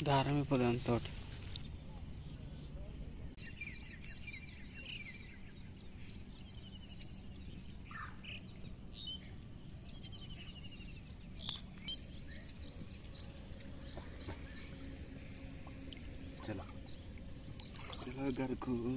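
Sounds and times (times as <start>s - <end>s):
low background rumble: 0.0s - 18.9s
small birds chirping: 0.0s - 18.9s.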